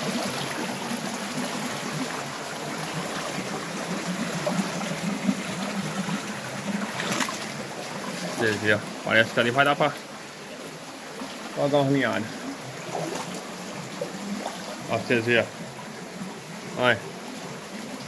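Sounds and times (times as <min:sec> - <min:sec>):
creek water trickling over rocks: 0:00.0 - 0:18.0.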